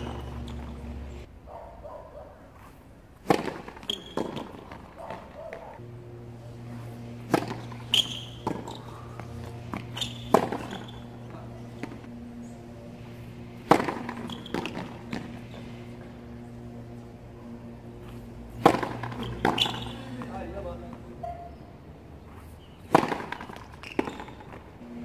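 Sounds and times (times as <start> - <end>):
tennis ball bouncing on court: 0.0 - 1.1, 3.2 - 5.8, 6.6 - 17.0, 17.8 - 21.5, 22.8 - 24.7
tennis racquet hitting ball: 0.0 - 1.2, 3.2 - 21.5, 22.8 - 24.7
steady low hum: 0.0 - 1.4, 2.4 - 25.0.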